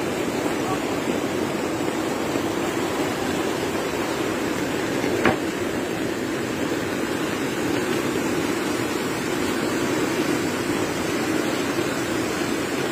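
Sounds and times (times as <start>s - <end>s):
floodwater rushing: 0.0s - 12.9s.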